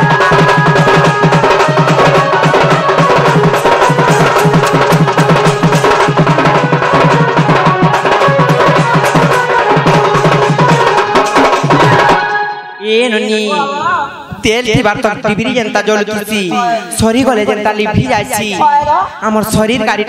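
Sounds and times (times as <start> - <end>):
dhol drumming: 0.0 - 12.4, 13.5 - 20.0
held melodic line: 0.0 - 14.5
other percussion: 0.0 - 20.0.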